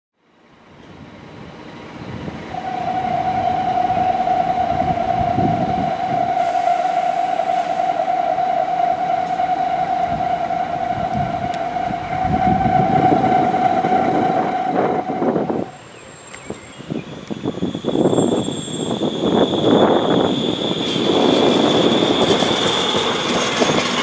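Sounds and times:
electric tram rumbling past: 0.3 - 24.0
steady high-pitched tone: 2.5 - 15.9.

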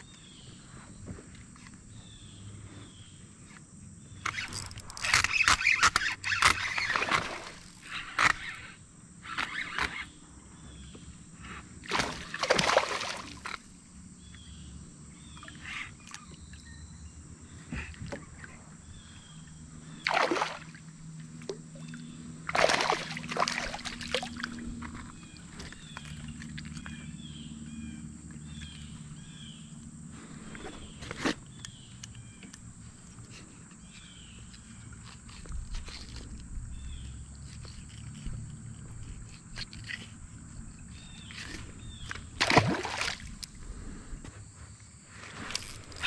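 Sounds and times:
fish splashing at surface: 11.9 - 13.5, 20.0 - 20.8, 22.5 - 24.6, 42.4 - 43.4.

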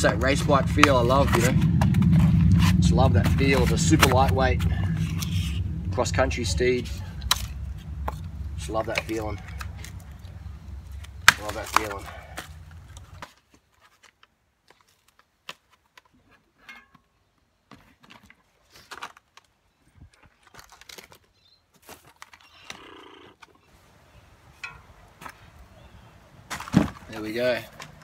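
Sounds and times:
packing clicks and rustles: 17.7 - 22.8.

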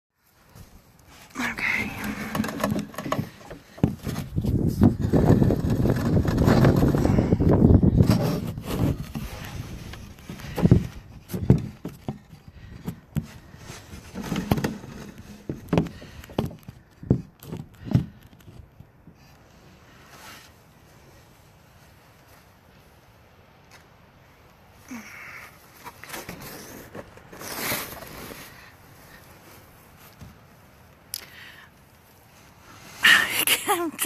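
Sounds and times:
phone handling knocks and scraping: 1.6 - 7.2
wind buffeting microphone: 4.0 - 11.8.

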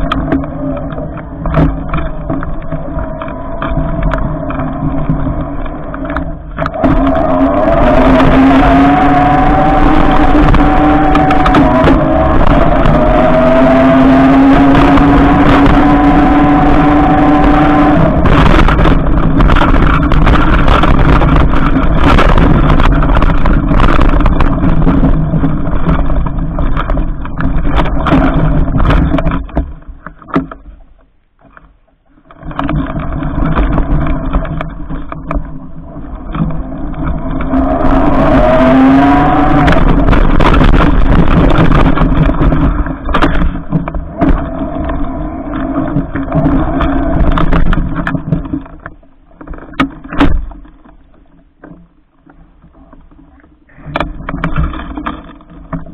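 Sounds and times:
electric motor whine: 6.0 - 21.9, 37.0 - 42.4
tyres rushing through snow: 37.2 - 42.6.

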